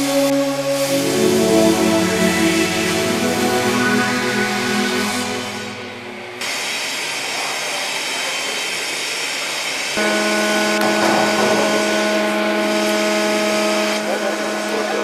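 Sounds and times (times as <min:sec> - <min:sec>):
music: 0:00.0 - 0:06.4
machine hum with held tones: 0:00.0 - 0:06.8, 0:10.0 - 0:15.0
noisy rumble: 0:00.6 - 0:06.8.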